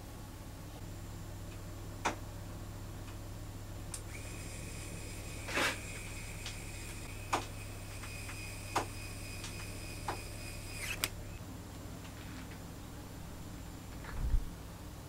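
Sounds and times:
electric screwdriver whine: 4.0 - 11.4.

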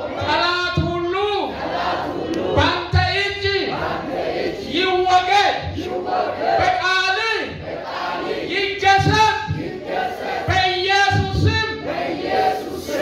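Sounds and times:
congregation praying aloud: 0.0 - 13.0.

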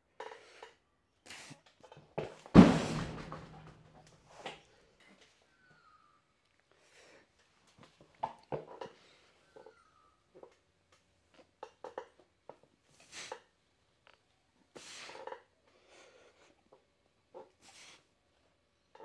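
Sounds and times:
sharp hissing exhalations: 13.0 - 13.5, 14.7 - 16.6, 17.6 - 18.2.

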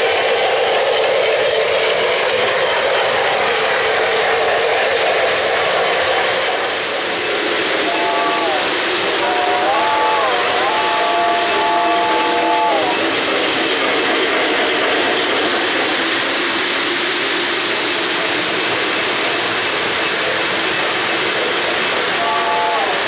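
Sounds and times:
model freight cars clattering: 6.8 - 22.4
model train chord whistle: 7.8 - 13.2, 22.1 - 23.0.

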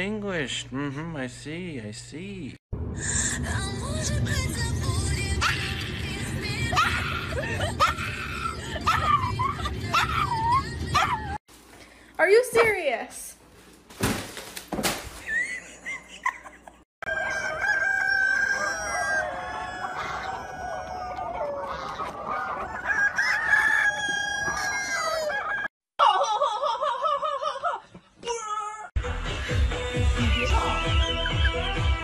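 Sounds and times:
rooster crowing: 17.0 - 25.7
chickens clucking: 18.5 - 25.6.

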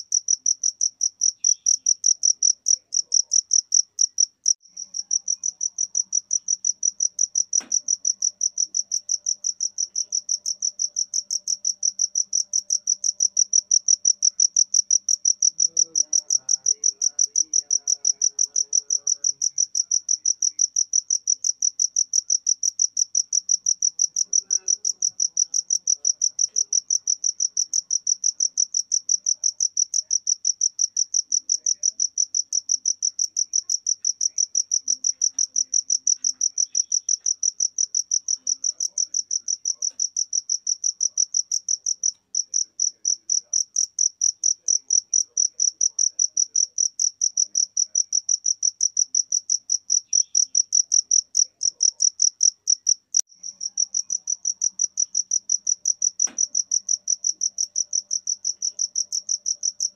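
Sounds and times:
cricket chirping: 0.0 - 59.9.

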